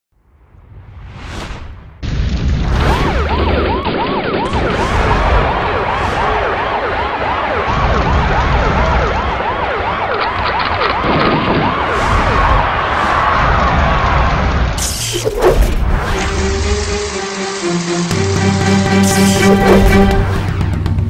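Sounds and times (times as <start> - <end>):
whooshes: 0.7 - 2.0, 11.3 - 18.2
siren wailing: 2.8 - 20.8.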